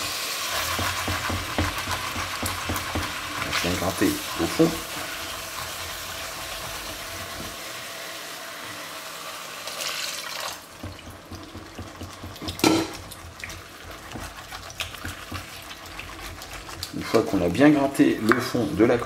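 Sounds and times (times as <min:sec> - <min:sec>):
marinade sizzling in a pot: 0:00.0 - 0:19.0
wooden spoon scraping a pot: 0:00.4 - 0:07.6, 0:11.1 - 0:19.0.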